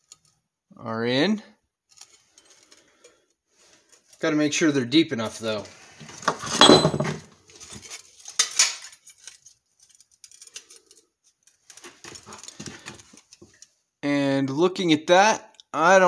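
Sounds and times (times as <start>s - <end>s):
sheet metal clinking and rattling: 6.4s - 7.3s.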